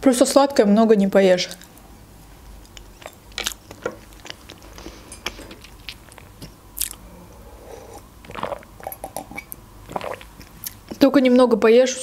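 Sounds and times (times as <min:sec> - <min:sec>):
person chewing: 0:02.6 - 0:11.0
sip from a mug: 0:07.5 - 0:10.3.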